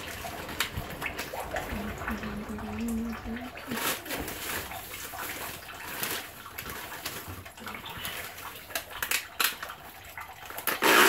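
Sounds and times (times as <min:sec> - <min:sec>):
utensils clicking and clattering: 0:10.5 - 0:11.0.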